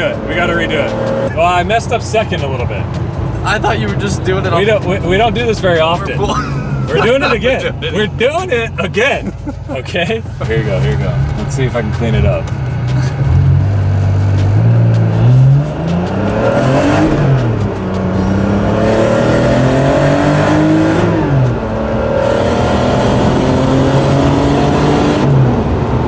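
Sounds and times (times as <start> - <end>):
car engine accelerating through gears: 0.0 - 1.7, 10.5 - 26.0.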